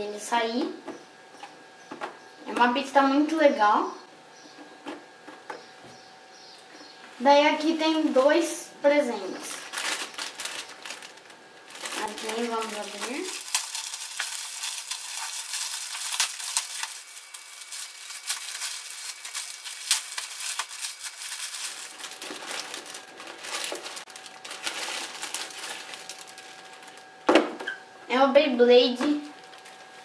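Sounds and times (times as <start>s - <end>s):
wrapping paper crinkling: 9.2s - 27.2s, 29.1s - 30.0s.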